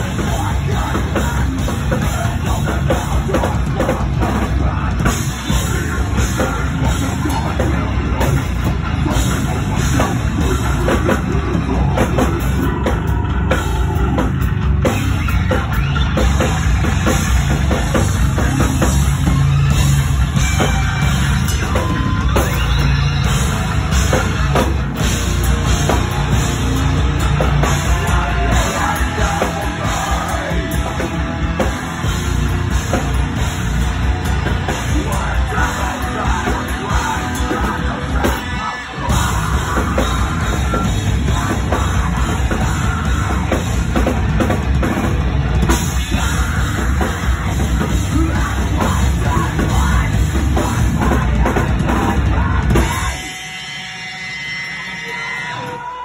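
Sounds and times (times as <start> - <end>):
distorted electric guitars: 0.0 - 56.0
pounding drum kit: 0.0 - 56.0
screamed vocals: 46.0 - 56.0.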